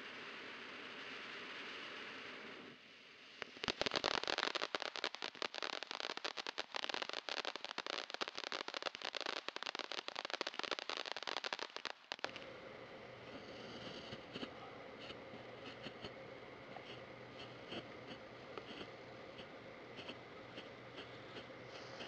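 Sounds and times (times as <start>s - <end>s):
firework fountain crackling: 3.4s - 12.4s, 18.7s - 22.0s
firework fountain hissing: 3.4s - 12.4s, 18.7s - 22.0s.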